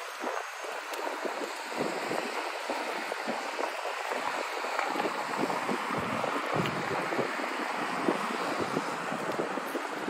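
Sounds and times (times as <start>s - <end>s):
traffic on wet roads: 0.0s - 10.0s
wind: 0.0s - 10.0s.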